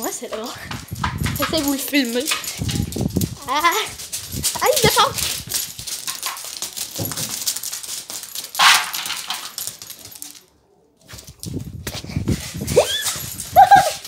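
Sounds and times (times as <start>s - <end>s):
low thumps: 0.5s - 3.4s.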